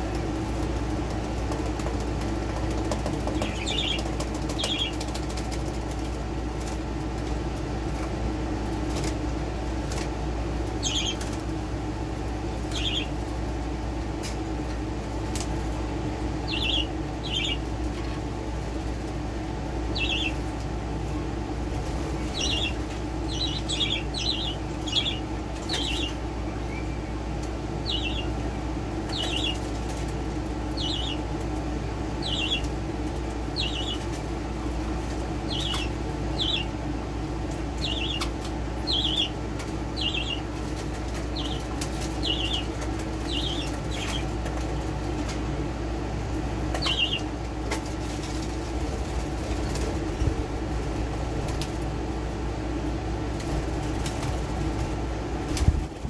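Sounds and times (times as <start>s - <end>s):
steady low hum: 0.0s - 56.0s
wings flapping: 0.1s - 7.3s, 37.5s - 45.4s, 46.7s - 51.9s, 53.3s - 56.0s
budgies chirping: 3.2s - 5.2s, 10.8s - 11.3s, 12.7s - 13.2s, 16.4s - 17.7s, 19.9s - 20.4s, 22.2s - 27.1s, 27.8s - 28.4s, 29.1s - 29.8s, 30.7s - 31.3s, 32.2s - 32.7s, 33.5s - 34.2s, 35.4s - 36.8s, 37.8s - 44.4s, 46.7s - 47.3s.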